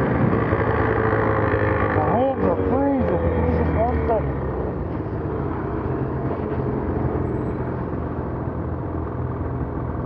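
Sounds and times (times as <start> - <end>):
snowmobile engine droning: 0.0 - 10.0.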